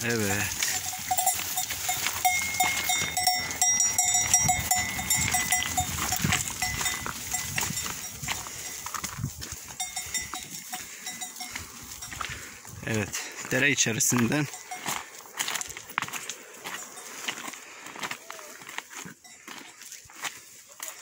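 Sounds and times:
sheep bells clanking: 0.0 - 21.0
single bell ringing clearly: 0.6 - 8.8, 9.8 - 12.3.

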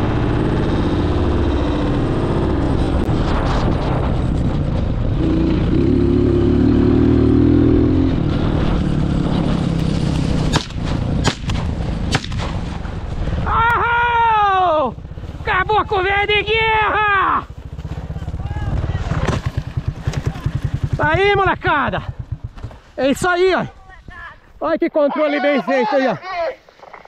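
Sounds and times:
motorcycle engine running: 0.0 - 23.1
gunshots: 10.4 - 12.8
high falling cries: 13.4 - 15.0.

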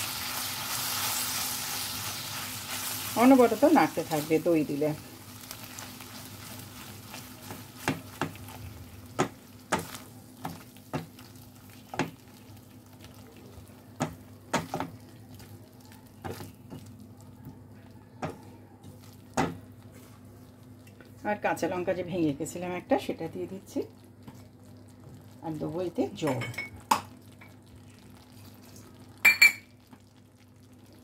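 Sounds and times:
faint sizzle: 0.0 - 31.0.

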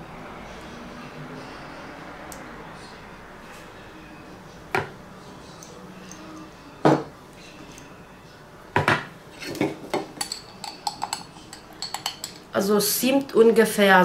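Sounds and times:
metal spoon knocking on kitchenware: 8.8 - 12.4.

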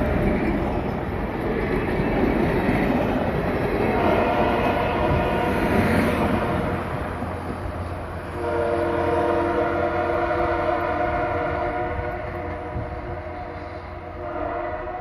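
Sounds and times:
train cars rumbling on rails: 0.0 - 15.0
locomotive chord horn: 3.9 - 7.0, 8.3 - 15.0.

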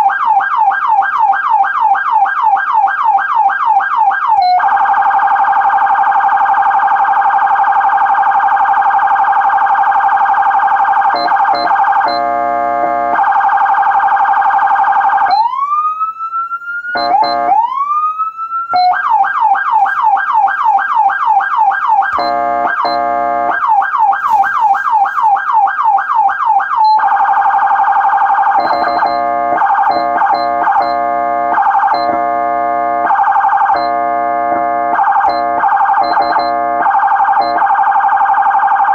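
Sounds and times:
electronic siren wailing and yelping: 0.0 - 38.9
air horn blasts: 12.2 - 13.2, 17.0 - 17.6, 22.2 - 23.6, 29.2 - 29.6, 30.5 - 33.1, 33.9 - 35.6, 36.5 - 36.8.

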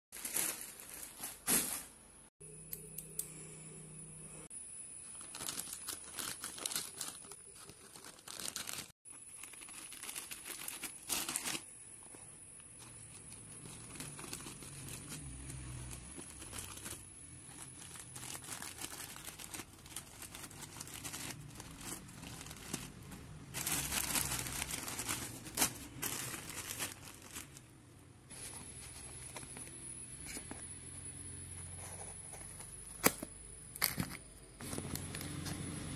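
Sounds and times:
plastic mailer crinkling: 5.1 - 11.7, 12.6 - 30.5.

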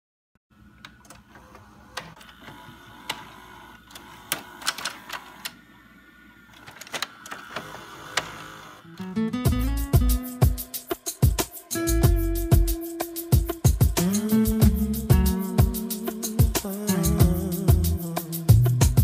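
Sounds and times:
tape deck mechanical whir: 0.6 - 9.2.

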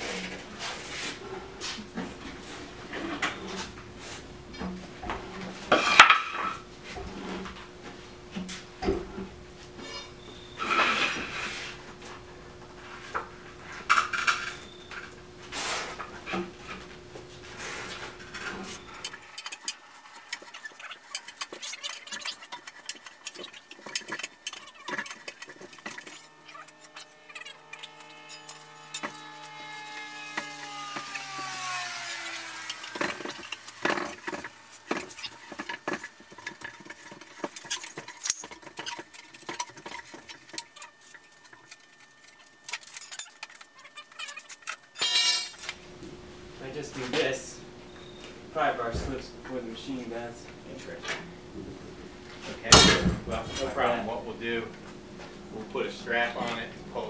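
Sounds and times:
machine droning hum: 0.0 - 57.0
metal tools clanking: 18.2 - 29.3, 32.8 - 45.8.

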